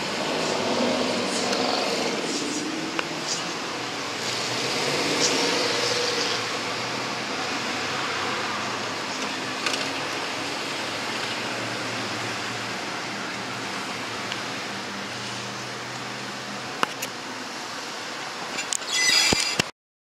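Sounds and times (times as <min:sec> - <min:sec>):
street traffic passing: 0:00.0 - 0:19.4.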